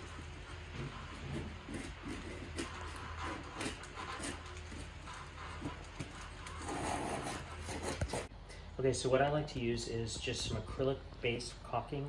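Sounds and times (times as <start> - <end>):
knife scraping metal: 0.7 - 8.3.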